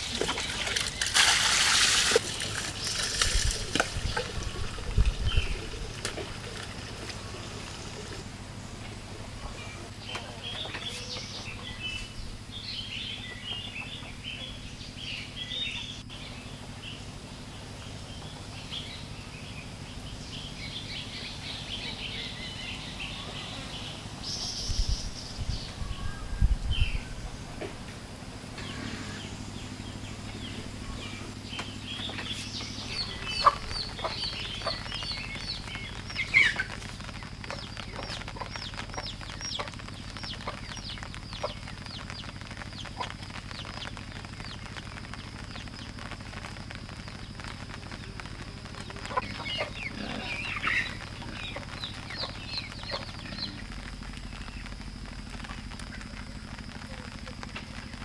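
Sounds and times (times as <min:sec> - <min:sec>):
steady low hum: 0:00.0 - 0:58.0
chickens clucking: 0:30.5 - 0:43.3, 0:48.7 - 0:53.7.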